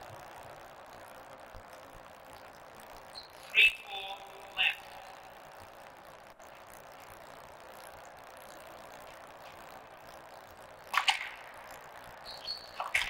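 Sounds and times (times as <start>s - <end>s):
steady hiss: 0.0s - 13.0s
squash ball cracks: 10.9s - 11.9s.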